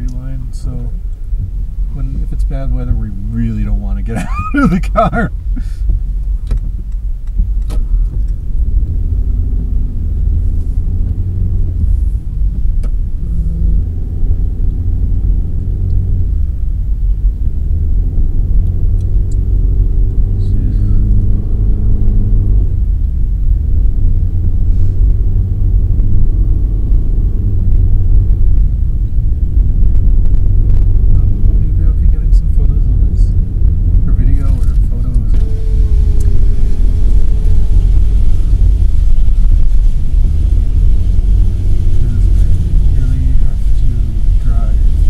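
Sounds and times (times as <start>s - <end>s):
car engine and tyres rumble: 0.0s - 45.0s.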